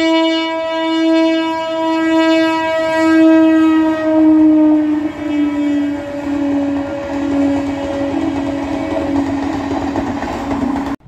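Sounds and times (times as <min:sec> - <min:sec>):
train coaches rumbling past: 0:00.0 - 0:11.0
train horn long note: 0:00.0 - 0:11.0.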